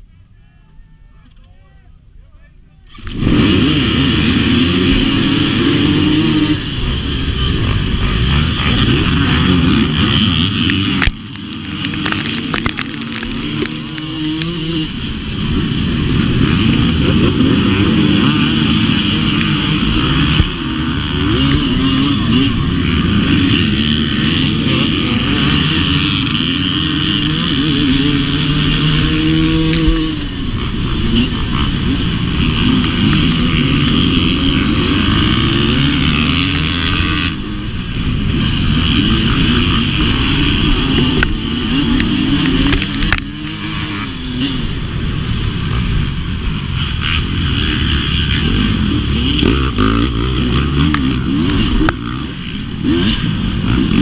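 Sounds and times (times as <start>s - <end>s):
dirt bike engine revving: 2.9s - 54.0s.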